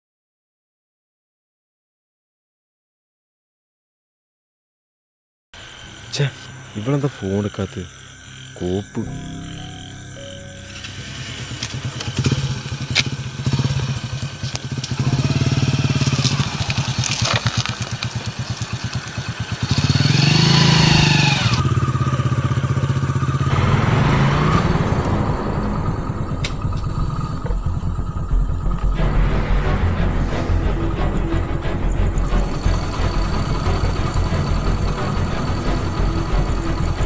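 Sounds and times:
motorcycle engine running: 0:08.0 - 0:37.0.

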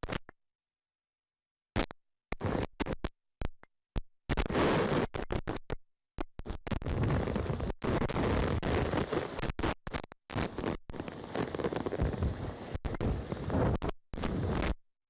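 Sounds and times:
wind rushing over microphone: 0:06.9 - 0:09.4, 0:11.0 - 0:14.7.

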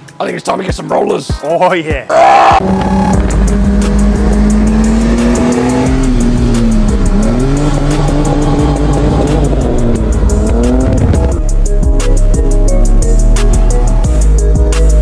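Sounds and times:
car exhaust note: 0:02.6 - 0:14.6.

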